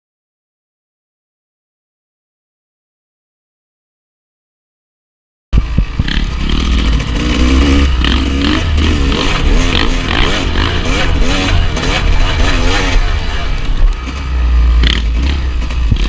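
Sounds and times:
dirt bike engine revving: 5.6 - 16.0.

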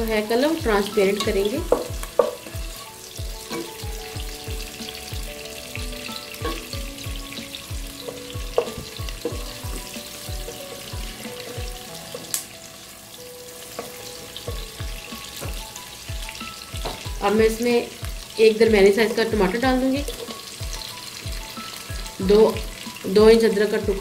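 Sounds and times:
background music with steady beat: 0.0 - 24.0
onions sizzling in oil: 0.0 - 24.0
spatula knocking against pot: 1.2 - 2.5, 8.0 - 10.9.

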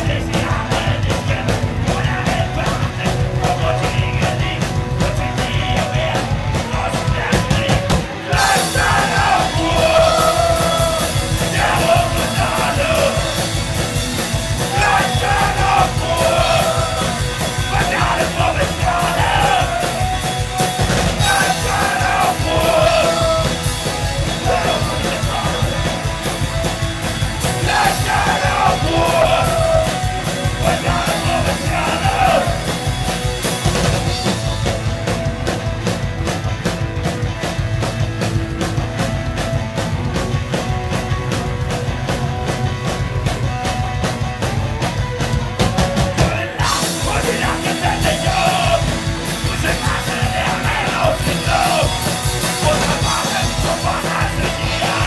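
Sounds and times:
sung and shouted vocals: 0.0 - 13.5, 14.6 - 20.2, 21.0 - 26.2, 27.5 - 32.8, 46.2 - 55.0
drums and cymbals crashing: 0.0 - 55.0
electric guitars: 0.0 - 55.0.

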